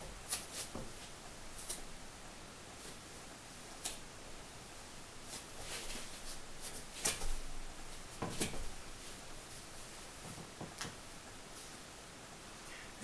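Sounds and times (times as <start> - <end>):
rustles on yoga mat: 0.1 - 1.9, 5.2 - 10.6, 11.4 - 12.0.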